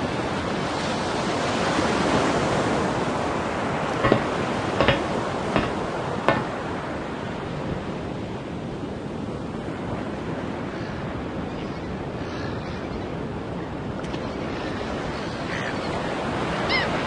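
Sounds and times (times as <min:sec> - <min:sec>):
sea waves washing: 0:00.0 - 0:10.4
wind: 0:00.0 - 0:17.0
sharp knocks: 0:04.0 - 0:06.7.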